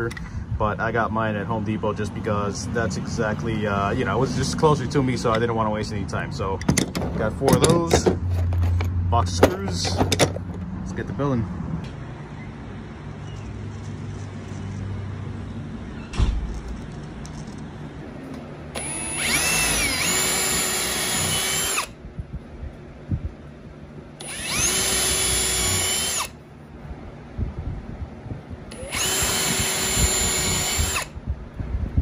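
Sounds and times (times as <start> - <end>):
sharp knock: 16.1 - 16.5
cordless drill boring into wood: 18.8 - 22.0, 24.2 - 26.4, 28.7 - 31.2.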